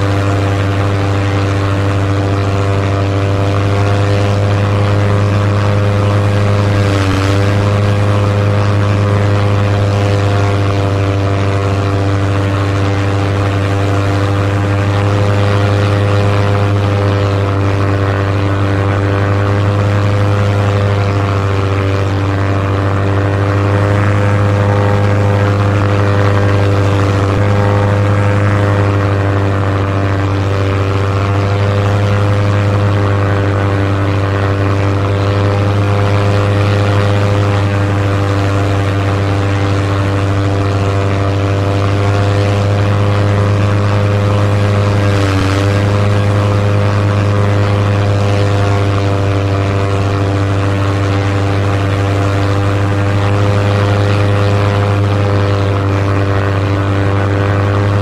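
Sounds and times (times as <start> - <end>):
propeller airplane engine drone: 0.0 - 58.0.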